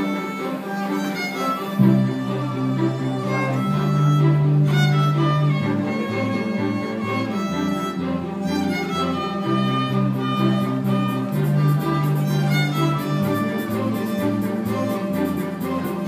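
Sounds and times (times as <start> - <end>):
violin melody: 0.0 - 16.0
low bass notes: 1.6 - 16.0
light regular beat: 3.2 - 16.0.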